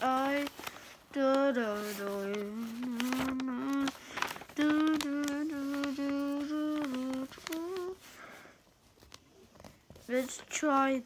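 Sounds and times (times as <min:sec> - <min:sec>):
paper crinkling: 0:00.0 - 0:11.0
person humming: 0:02.0 - 0:04.0, 0:04.6 - 0:08.0.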